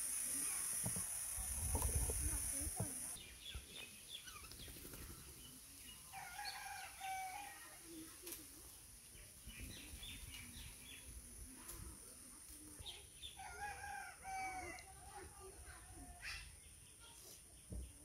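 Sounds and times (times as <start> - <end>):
small birds chirping: 0.0 - 13.7.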